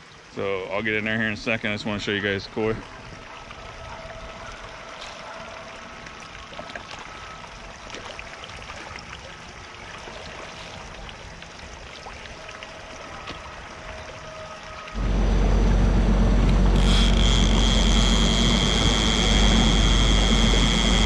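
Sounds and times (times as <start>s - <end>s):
water trickling: 0.0s - 15.0s
faint steady hum: 14.8s - 21.0s.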